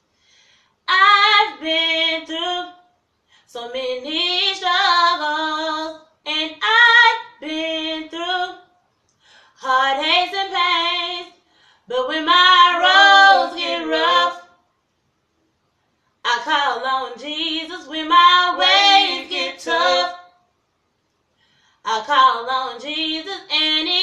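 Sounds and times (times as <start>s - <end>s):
woman singing unaccompanied: 3.5s - 8.6s, 9.6s - 11.3s, 11.9s - 14.4s, 16.3s - 20.2s, 21.9s - 24.0s.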